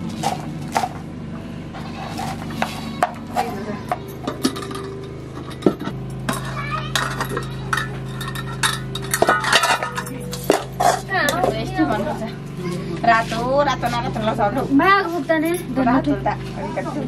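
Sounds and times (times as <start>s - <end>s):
pots and dishes clinking: 2.1s - 12.0s.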